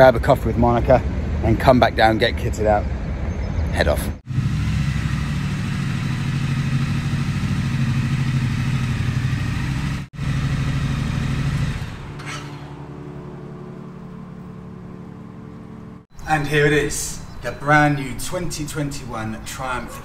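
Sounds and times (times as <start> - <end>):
motorcycle engine running: 4.3 - 16.1.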